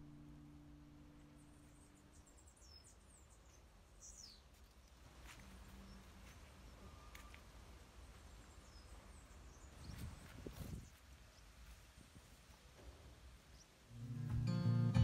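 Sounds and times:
faint high bird chirps: 0:00.0 - 0:07.5.

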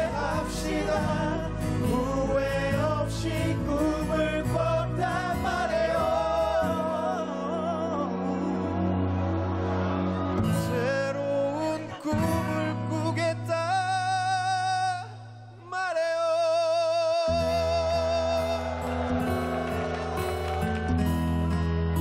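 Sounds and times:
person singing with vibrato: 0:00.0 - 0:08.8
band with guitar and bass: 0:00.0 - 0:15.7, 0:17.1 - 0:22.0.

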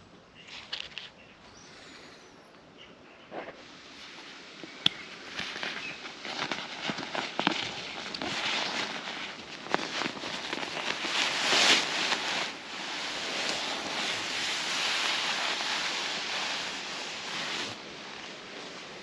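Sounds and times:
nylon fabric rustling: 0:03.9 - 0:19.0.

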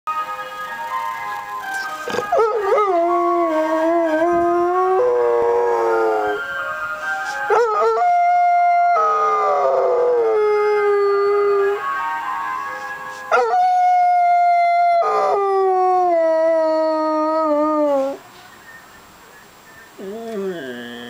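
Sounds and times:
dog howling: 0:20.0 - 0:21.0.

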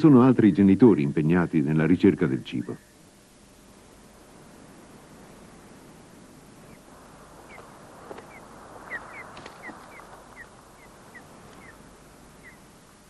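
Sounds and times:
faint background hiss: 0:00.0 - 0:13.0
sea eagles calling: 0:03.9 - 0:13.0.

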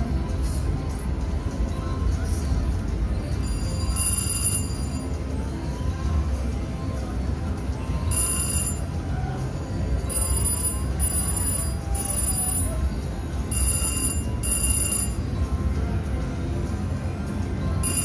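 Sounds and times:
low casino hum: 0:00.0 - 0:18.0
slot machine electronic chimes: 0:03.3 - 0:05.4, 0:07.5 - 0:15.8, 0:16.8 - 0:18.0.

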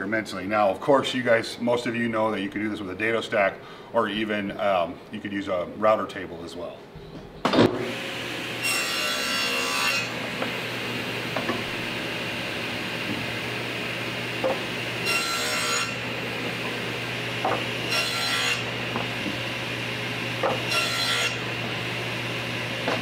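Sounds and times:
table saw cutting plywood: 0:07.7 - 0:23.0
steady saw hum: 0:07.8 - 0:23.0.

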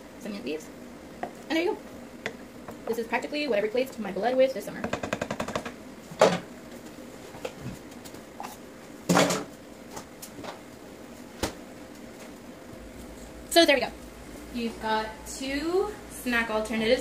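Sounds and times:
kitchen items knocking and clattering: 0:04.9 - 0:06.5, 0:09.1 - 0:09.5.

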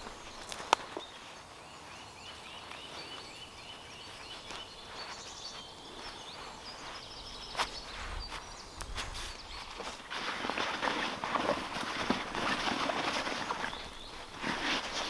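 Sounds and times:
faint forest background: 0:00.0 - 0:15.0
small bird singing: 0:00.0 - 0:15.0.

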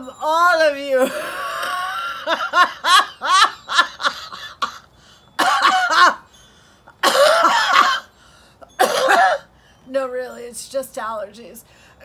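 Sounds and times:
woman coughing: 0:05.4 - 0:06.2, 0:07.0 - 0:08.1, 0:08.8 - 0:09.5.

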